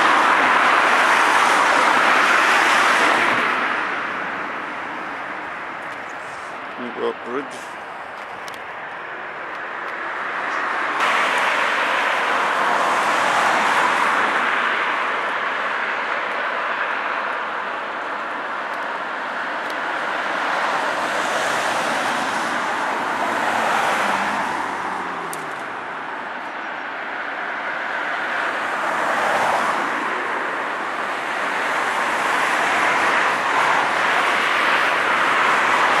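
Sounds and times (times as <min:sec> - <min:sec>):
road traffic passing: 0:00.0 - 0:36.0.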